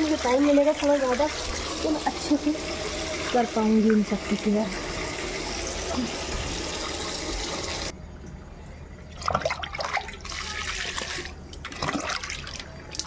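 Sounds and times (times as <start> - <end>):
water splashing: 9.1 - 13.0.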